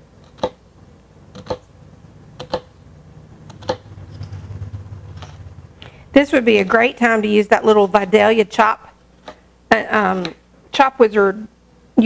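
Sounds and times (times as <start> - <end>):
knife chopping on cutting board: 0.2 - 0.6, 1.3 - 1.7, 2.4 - 2.8.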